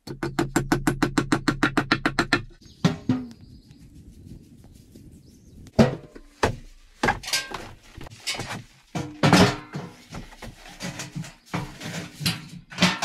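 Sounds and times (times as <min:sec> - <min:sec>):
steel stove knocking and thunking: 0:08.3 - 0:13.0.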